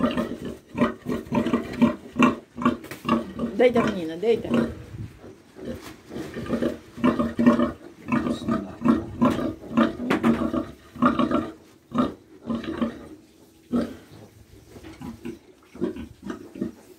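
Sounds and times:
sow grunting: 0:00.0 - 0:13.1.

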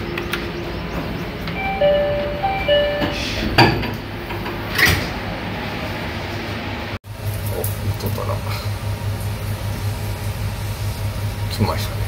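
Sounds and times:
two-note door chime: 0:01.5 - 0:03.5.

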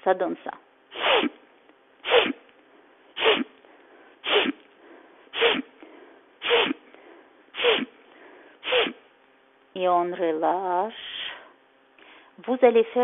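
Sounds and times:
woman sniffing sharply through nose: 0:00.9 - 0:01.4, 0:02.0 - 0:02.4, 0:03.2 - 0:03.5, 0:04.2 - 0:04.6, 0:05.3 - 0:05.7, 0:06.4 - 0:06.8, 0:07.5 - 0:07.9, 0:08.6 - 0:09.0.

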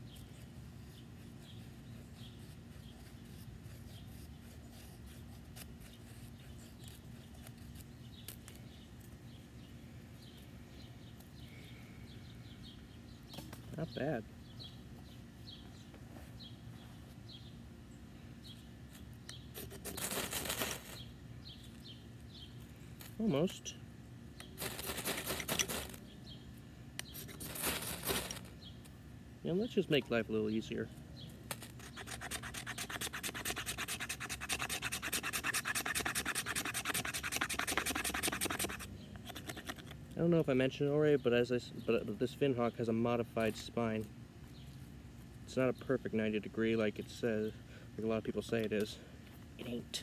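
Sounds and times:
knife scraping ferrocerium rod: 0:31.5 - 0:39.9.

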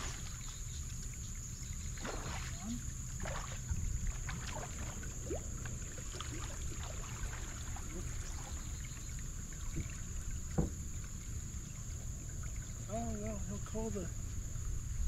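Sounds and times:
light water splashing: 0:00.0 - 0:15.0
wind and water rumble: 0:00.0 - 0:15.0
fish thrashing at surface: 0:02.0 - 0:05.5.

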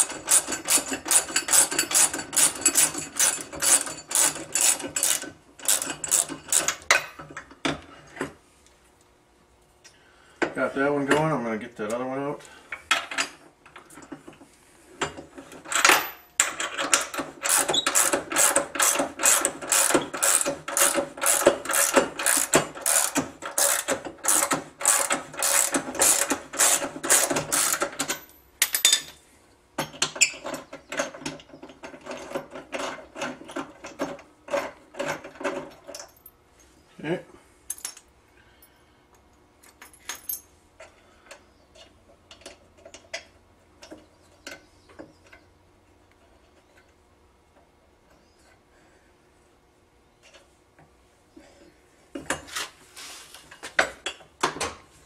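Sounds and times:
ratchet wrench clicking: 0:00.0 - 0:06.8, 0:16.5 - 0:28.0.

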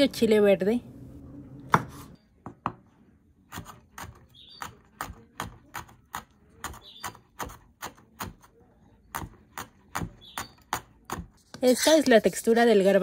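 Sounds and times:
knife chopping on wooden board: 0:01.7 - 0:02.8, 0:03.5 - 0:08.5, 0:09.1 - 0:11.4.

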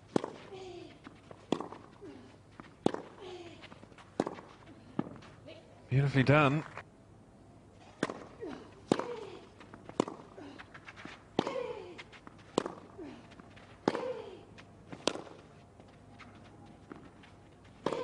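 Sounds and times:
tennis racket hitting ball: 0:00.1 - 0:00.5, 0:01.4 - 0:02.0, 0:02.8 - 0:03.2, 0:04.1 - 0:05.1, 0:08.0 - 0:10.3, 0:12.5 - 0:12.8, 0:14.9 - 0:15.4, 0:17.8 - 0:18.0.

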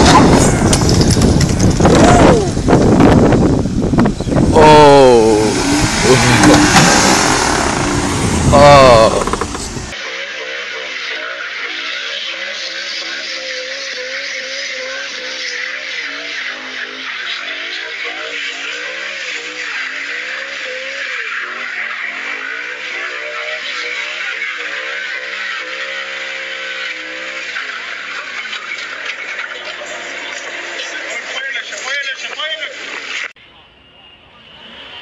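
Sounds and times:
car engine revving: 0:00.0 - 0:10.0.

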